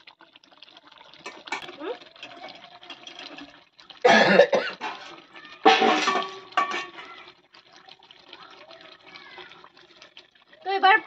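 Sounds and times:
woman coughing: 0:04.0 - 0:04.8.

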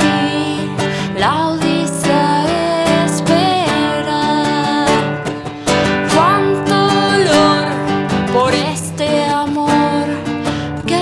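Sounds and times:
strummed acoustic guitar: 0:00.0 - 0:11.0
woman singing: 0:00.0 - 0:11.0.

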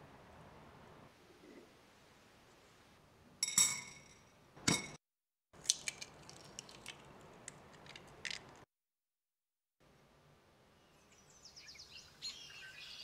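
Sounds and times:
egg clinking on metal: 0:03.4 - 0:05.0
eggshell crackling: 0:05.6 - 0:08.6
soft squish of egg: 0:05.6 - 0:08.6.

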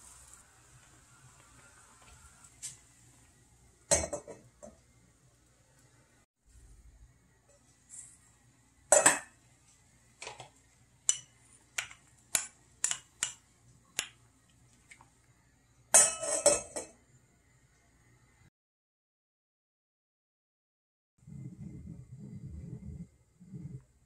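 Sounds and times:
metal pot lid clanking: 0:03.9 - 0:04.8, 0:16.0 - 0:17.0.

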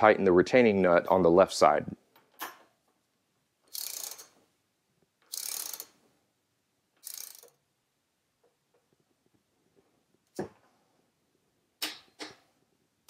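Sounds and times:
ratcheting torque wrench clicking: 0:03.7 - 0:04.4, 0:05.2 - 0:06.0, 0:07.0 - 0:07.6.

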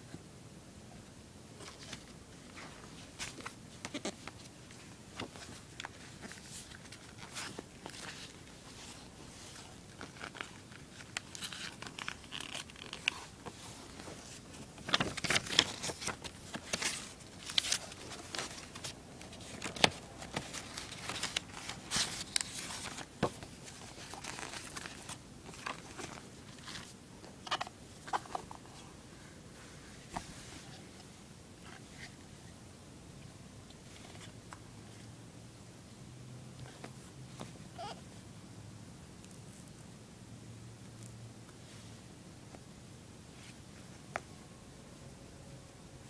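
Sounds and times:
paper and cardboard rustling: 0:01.6 - 0:28.9.

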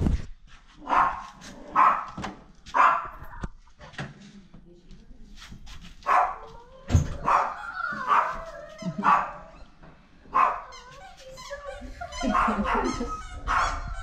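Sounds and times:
puppy yapping: 0:07.2 - 0:09.6, 0:10.4 - 0:11.0
puppy whining: 0:07.3 - 0:09.7.

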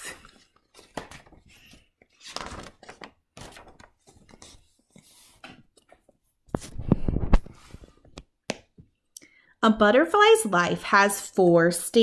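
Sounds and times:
book pages turning: 0:00.2 - 0:08.2.

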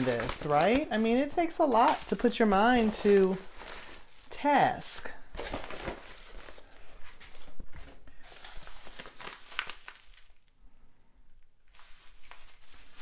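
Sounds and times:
paper envelope rustling: 0:00.0 - 0:04.4, 0:05.3 - 0:10.5, 0:11.7 - 0:13.0.

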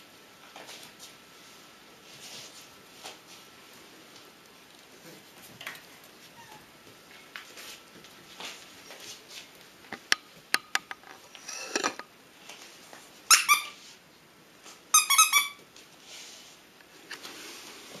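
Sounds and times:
puppy squeaking: 0:06.4 - 0:06.6.

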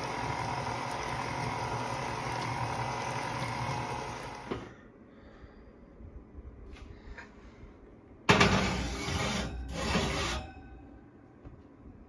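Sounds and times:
electric stand mixer running: 0:00.0 - 0:04.7.

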